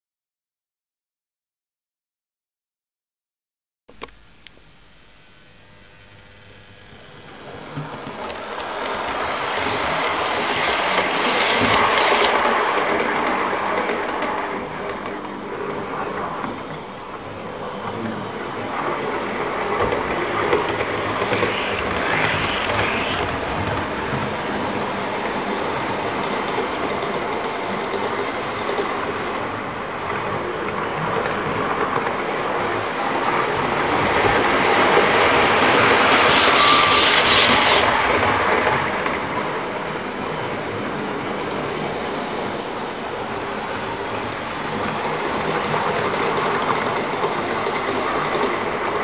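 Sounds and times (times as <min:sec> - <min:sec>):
wheels clicking over rail joints: 0:07.7 - 0:15.4, 0:19.1 - 0:25.5
whirr of small motors: 0:20.0 - 0:24.2, 0:35.7 - 0:38.3.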